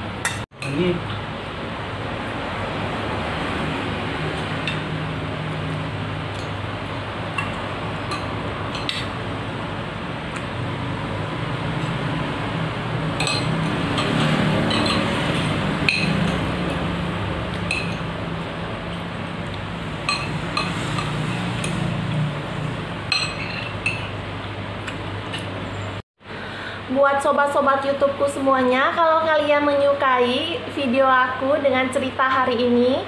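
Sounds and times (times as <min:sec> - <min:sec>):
cutlery clinking on plates: 0:07.4 - 0:09.1, 0:13.2 - 0:16.5, 0:20.0 - 0:21.8, 0:23.1 - 0:24.1.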